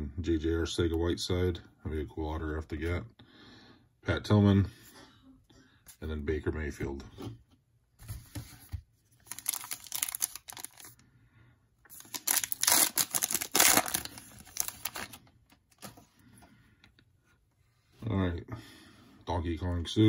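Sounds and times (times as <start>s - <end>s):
foil wrapper crinkling and tearing: 9.2s - 11.0s, 11.9s - 15.2s.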